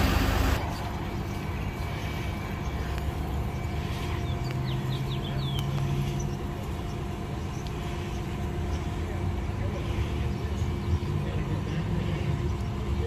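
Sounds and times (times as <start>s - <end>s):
electric bus humming: 0.0s - 13.0s
bird chirping: 3.5s - 8.9s.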